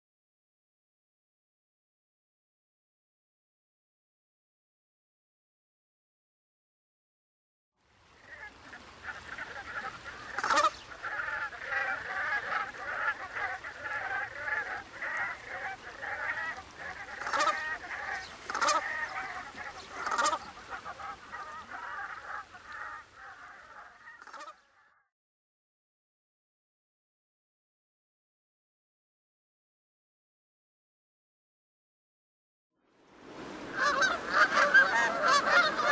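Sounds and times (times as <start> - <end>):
geese calling: 8.2 - 25.0, 33.6 - 35.9.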